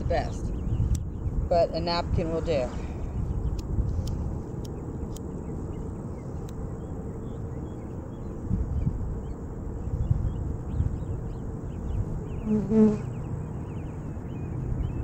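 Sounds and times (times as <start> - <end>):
wind buffeting microphone: 0.0 - 15.0
bees buzzing: 12.2 - 13.7.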